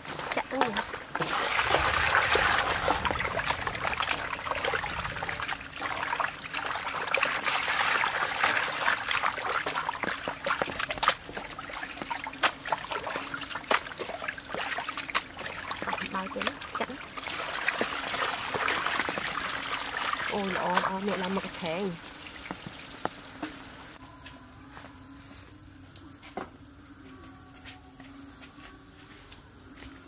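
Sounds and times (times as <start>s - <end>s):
running water splashing: 0.0s - 24.0s
hands rinsing meat: 0.1s - 23.6s.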